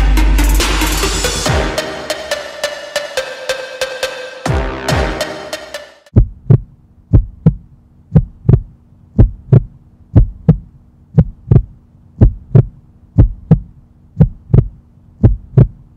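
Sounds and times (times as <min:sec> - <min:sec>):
heartbeat double thump: 0:06.1 - 0:15.8
steady hum: 0:06.1 - 0:15.9.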